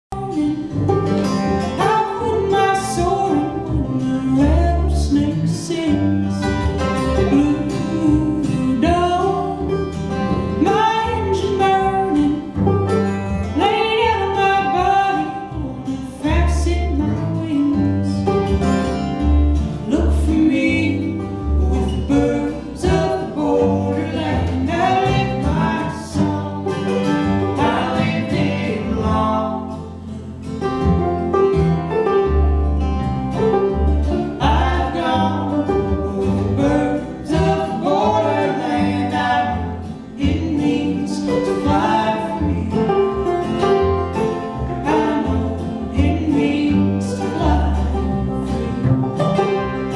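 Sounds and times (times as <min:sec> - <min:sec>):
upright bass: 0:00.0 - 0:49.9
acoustic guitar: 0:00.1 - 0:49.9
banjo: 0:00.1 - 0:49.9
man singing harmony: 0:01.8 - 0:06.6, 0:19.8 - 0:30.0, 0:34.3 - 0:43.4, 0:44.7 - 0:48.8.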